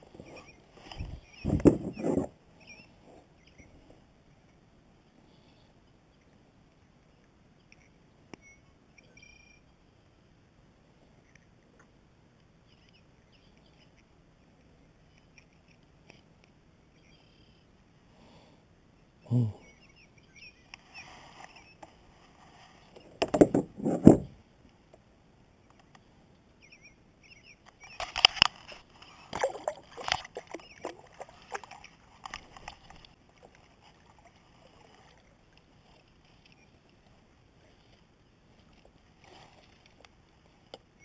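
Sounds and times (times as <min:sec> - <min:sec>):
water splashing: 0:29.3 - 0:35.0.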